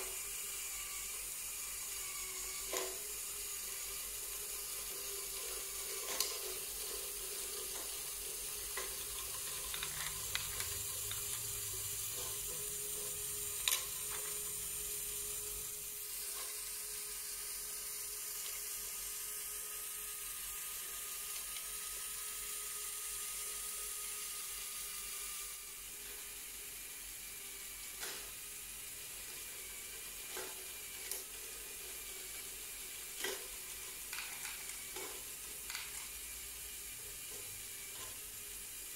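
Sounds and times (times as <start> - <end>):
electric motors whirring: 0.0 - 38.9
plastic balls rolling on tracks: 4.0 - 16.6, 29.2 - 36.4
balls clicking against parts: 7.6 - 12.5.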